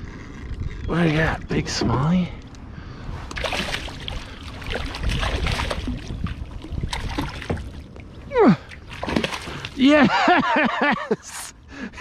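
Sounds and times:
water splashing: 3.3s - 10.0s.

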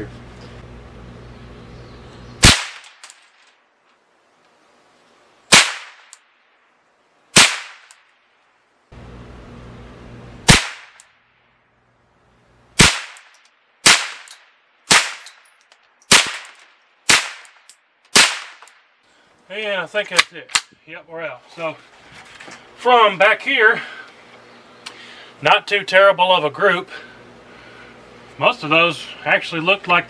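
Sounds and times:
rifle shots: 2.4s - 3.4s, 5.5s - 6.2s, 7.3s - 8.0s, 10.4s - 11.1s, 12.8s - 15.5s, 16.1s - 18.8s.

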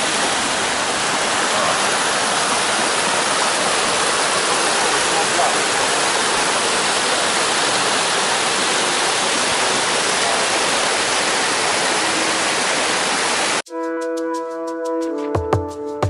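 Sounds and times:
waterfall rushing: 0.0s - 13.6s
electronic music held chord: 13.7s - 16.0s.

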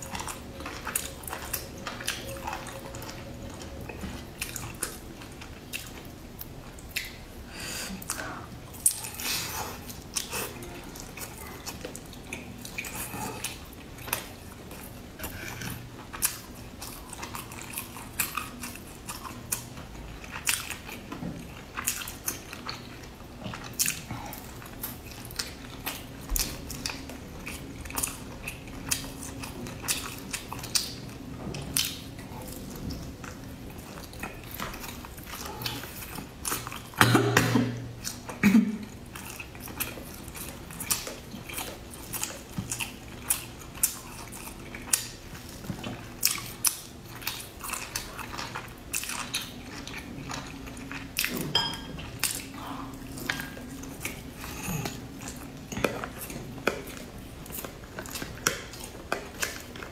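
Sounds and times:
person chewing crunchy food: 0.0s - 59.9s.

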